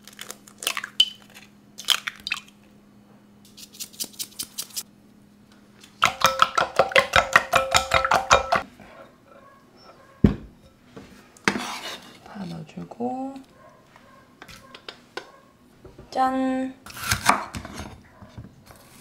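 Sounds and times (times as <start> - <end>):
spoon beating eggs in glass bowl: 6.0 - 8.6
thump: 10.2 - 10.5.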